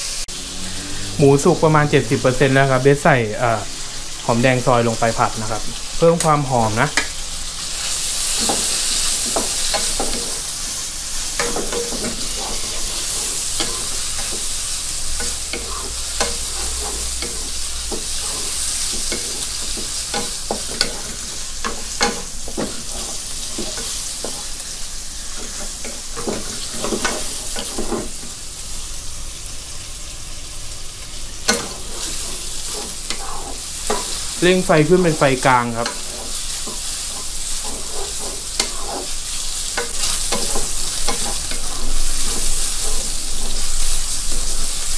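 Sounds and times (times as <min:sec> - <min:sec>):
meat sizzling in oil: 0:00.0 - 0:44.9
wooden spatula scraping pan: 0:07.8 - 0:28.4, 0:31.5 - 0:44.9.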